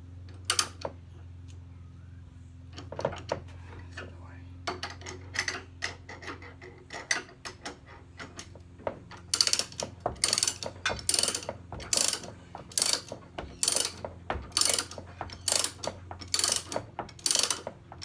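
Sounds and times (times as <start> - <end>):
winch ratcheting clicks: 0.3 - 1.0, 4.7 - 18.0.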